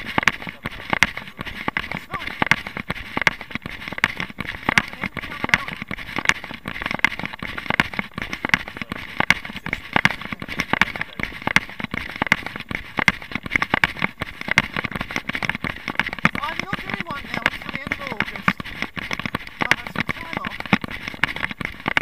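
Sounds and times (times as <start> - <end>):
camera knocking and rattling: 0.0 - 22.0
running footsteps on pavement: 0.0 - 22.0.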